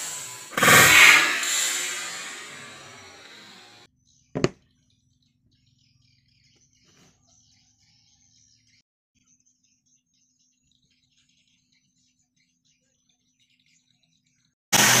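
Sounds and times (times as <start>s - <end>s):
faint birds chirping: 4.0s - 14.6s
board knocked on wooden workbench: 4.4s - 4.6s.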